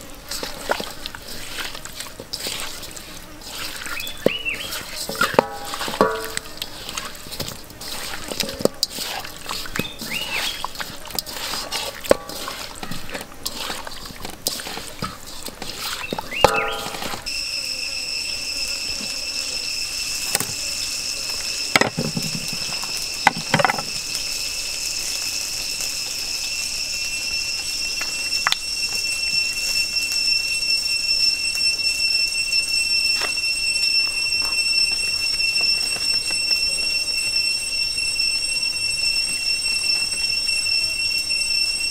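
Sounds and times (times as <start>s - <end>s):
hands squishing raw chicken: 0.0s - 17.3s
high-pitched insect drone: 16.1s - 41.9s.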